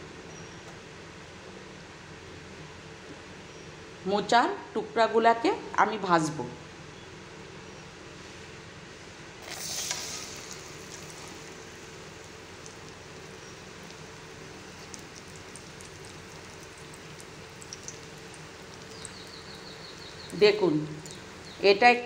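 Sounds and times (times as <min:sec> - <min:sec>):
batter frying in hot oil: 0:09.4 - 0:21.6.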